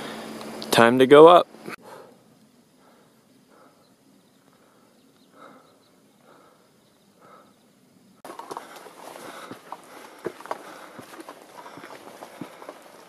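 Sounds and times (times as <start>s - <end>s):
footsteps on rocky trail: 8.2s - 13.0s.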